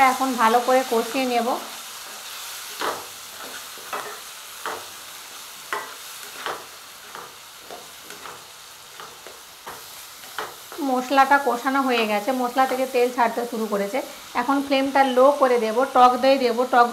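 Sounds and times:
masala sizzling in oil: 0.0s - 16.9s
spatula stirring and scraping: 1.6s - 10.8s.

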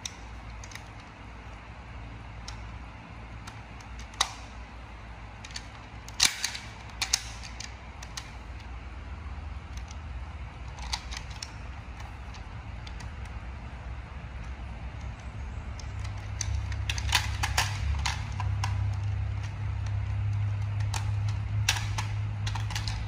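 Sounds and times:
steady low hum: 0.0s - 23.0s
plastic toy clicks and taps: 5.4s - 8.7s, 10.6s - 13.4s, 14.4s - 23.0s.

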